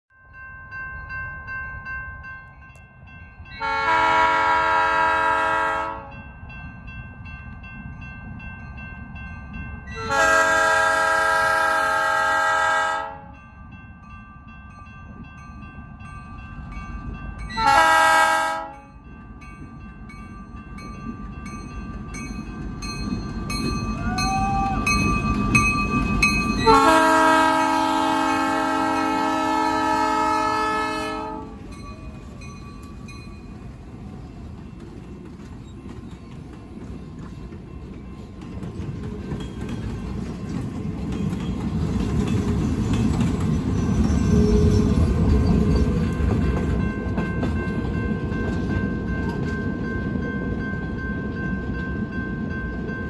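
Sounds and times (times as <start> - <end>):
crossing bell ringing: 0.1 - 53.0
locomotive engine and wheels rumbling: 0.2 - 53.0
locomotive air horn blasts: 3.6 - 6.1, 10.0 - 13.4, 17.6 - 18.9, 26.6 - 31.6.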